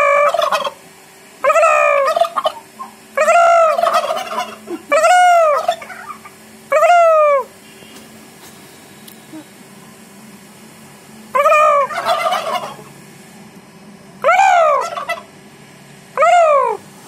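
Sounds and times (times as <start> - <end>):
turkeys gobbling: 0.0 - 0.8, 1.4 - 7.5, 11.3 - 12.9, 14.2 - 15.4, 16.2 - 16.8.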